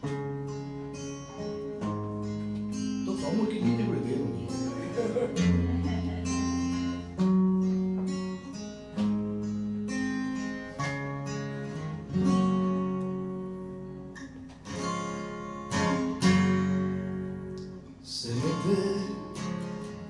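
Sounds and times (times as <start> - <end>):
acoustic guitar strumming chords: 0.0 - 20.0.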